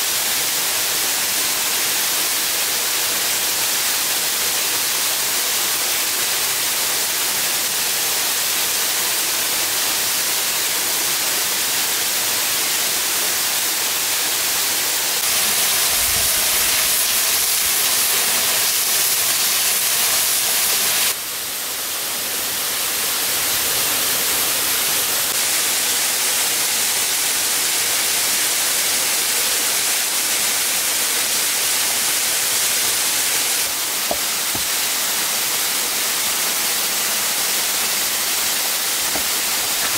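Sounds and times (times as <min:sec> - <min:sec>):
waterfall rushing: 0:09.6 - 0:39.9.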